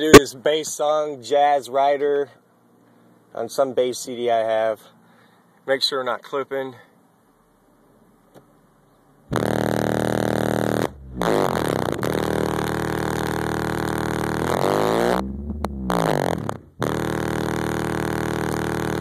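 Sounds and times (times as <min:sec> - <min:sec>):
subwoofer bass music in car: 0:09.3 - 0:19.0.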